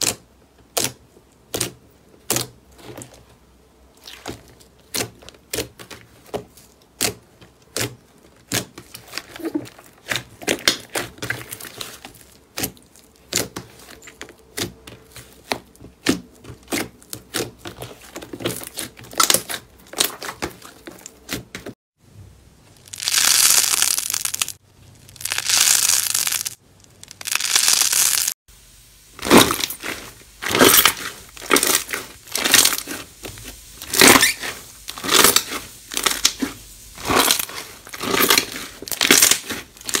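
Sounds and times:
crunchy slime squishes: 0.0s - 21.8s, 22.7s - 28.4s, 29.1s - 40.0s
slime squelching and popping: 4.0s - 21.7s, 22.8s - 28.3s, 29.2s - 40.0s
slime crackling and hissing: 7.0s - 21.4s, 22.8s - 40.0s.

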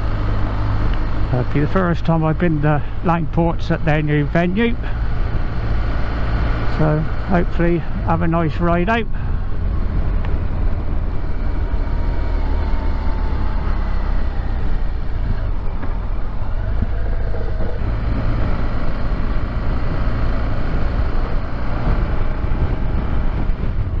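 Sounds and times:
motorcycle engine: 0.0s - 24.0s
road noise: 0.0s - 24.0s
wind rumble on microphone: 9.1s - 24.0s.

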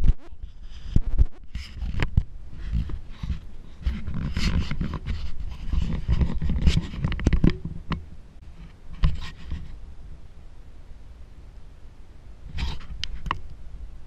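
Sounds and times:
fingers rubbing on camera: 0.0s - 7.8s, 8.6s - 9.8s, 12.5s - 13.4s
steady low rumble: 0.0s - 14.0s.

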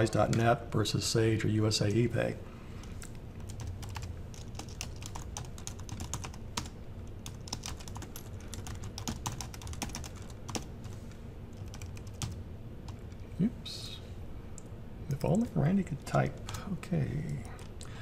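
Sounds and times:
typing on computer keyboard: 3.4s - 10.7s, 11.6s - 13.2s.

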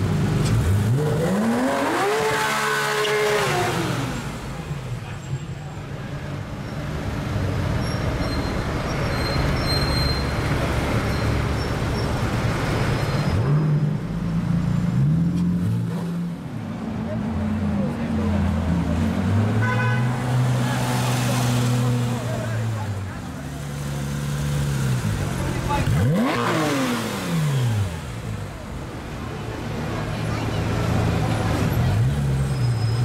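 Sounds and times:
traffic noise: 0.0s - 33.0s
sports car engine revving: 0.4s - 4.4s, 23.6s - 28.3s.

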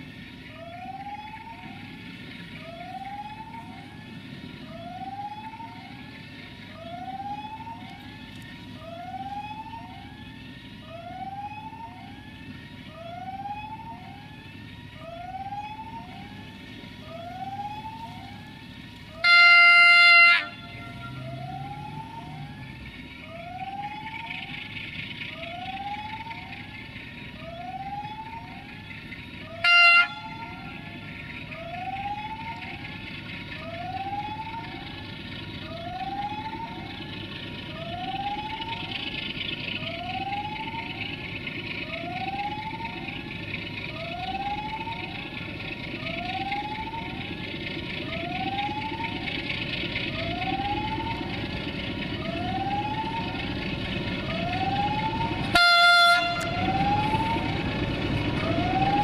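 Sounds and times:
diesel locomotive engine: 0.0s - 59.0s
rising warning tone: 15.0s - 59.0s
train horn blast: 19.2s - 21.3s, 29.6s - 30.4s, 55.5s - 56.7s.

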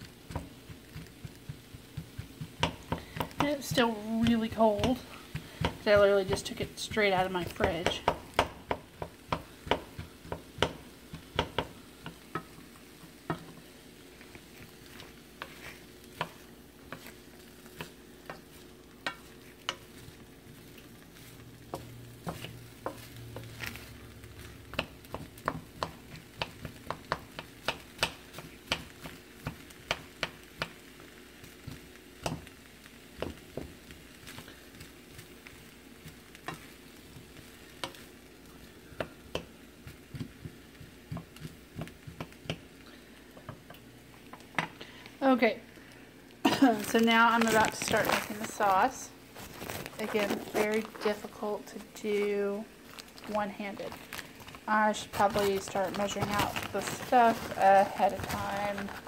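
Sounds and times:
spatula tapping a pan: 0.0s - 13.6s, 14.6s - 20.8s, 21.6s - 38.3s, 38.9s - 42.7s
food sizzling: 0.0s - 59.0s
spatula scraping a wok: 14.2s - 29.9s.

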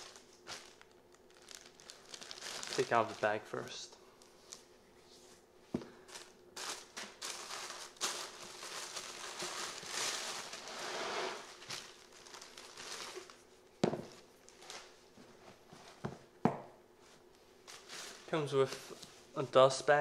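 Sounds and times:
tissue paper rustling: 0.0s - 3.4s, 6.1s - 13.4s.

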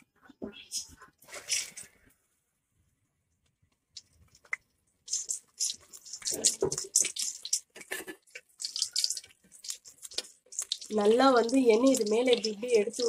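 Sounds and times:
oil crackling and popping: 3.7s - 13.0s.

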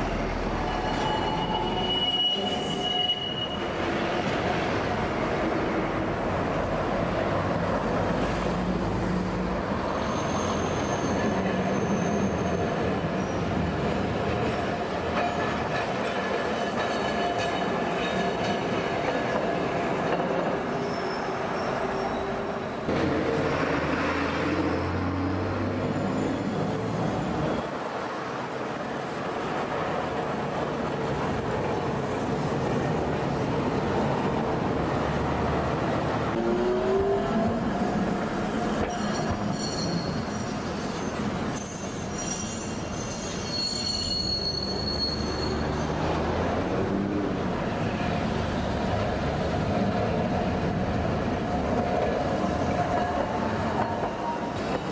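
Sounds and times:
buses passing: 0.0s - 54.9s
city traffic: 0.0s - 54.9s
streetcars rumbling on track: 0.0s - 54.9s
high wheel squeals: 0.5s - 3.9s, 9.9s - 13.4s, 20.7s - 22.8s, 25.8s - 27.8s, 38.7s - 46.9s.

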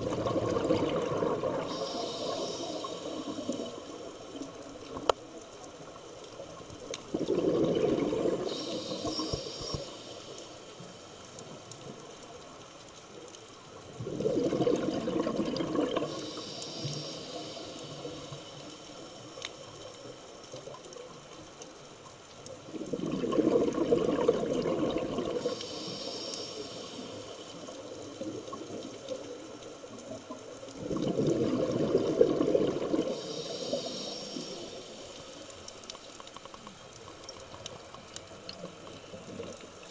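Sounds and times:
exhaled bubbles rushing: 0.0s - 1.8s, 7.0s - 8.9s, 13.9s - 16.2s, 22.7s - 25.6s, 30.7s - 33.8s
diver breathing through regulator: 1.4s - 3.6s, 8.3s - 10.5s, 16.0s - 18.4s, 25.4s - 27.4s, 32.8s - 35.2s.

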